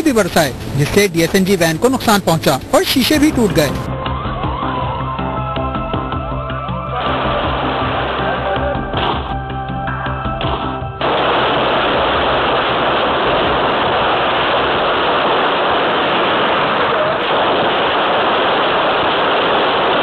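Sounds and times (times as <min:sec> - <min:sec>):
loud steady rushing noise: 0:00.0 - 0:03.9, 0:06.9 - 0:09.3, 0:10.7 - 0:20.0.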